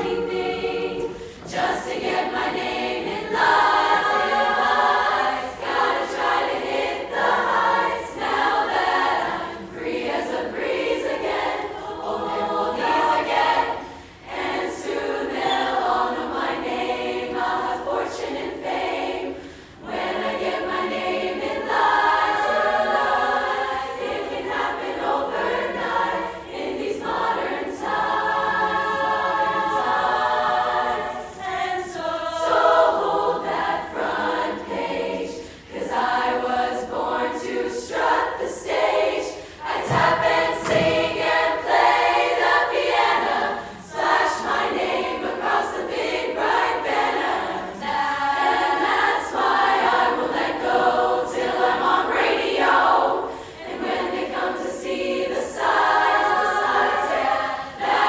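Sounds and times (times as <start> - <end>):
large choir singing: 0.0 - 58.0.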